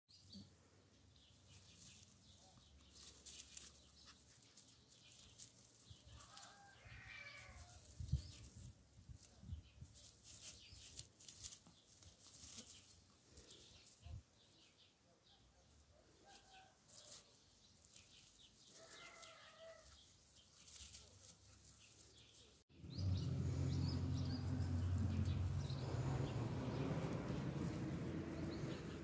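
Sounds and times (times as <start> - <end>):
dry grass rustling: 1.2 - 14.7, 16.2 - 29.0
low bumps: 22.8 - 29.0.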